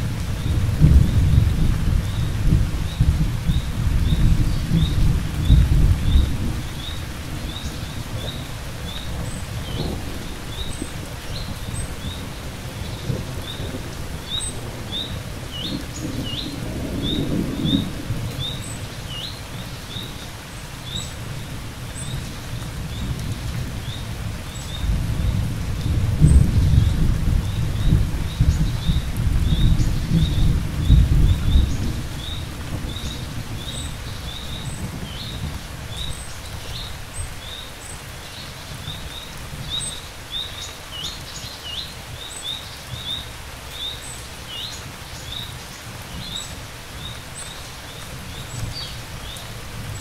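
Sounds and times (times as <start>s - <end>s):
rolling thunder: 0.0s - 18.8s, 22.8s - 36.2s
steady rain: 0.0s - 50.0s.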